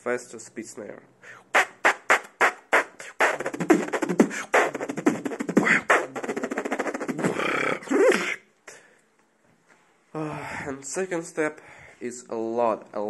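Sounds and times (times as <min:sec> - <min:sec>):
beatboxed spit snares: 0:01.5 - 0:08.4.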